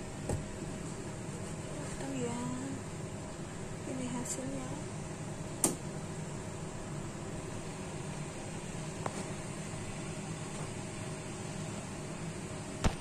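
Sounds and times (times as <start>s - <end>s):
background hiss and hum: 0.0s - 13.0s
sharp click: 5.6s - 5.8s.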